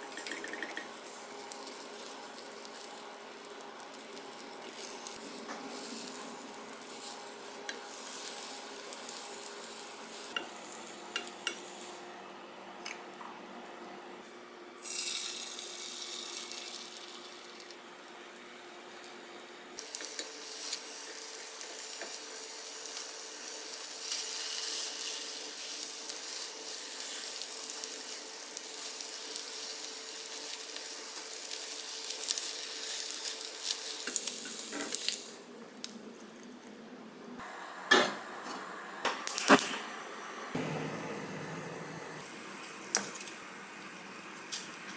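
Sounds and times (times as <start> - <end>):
egg sizzling in a pan: 0.0 - 12.1, 14.8 - 36.0.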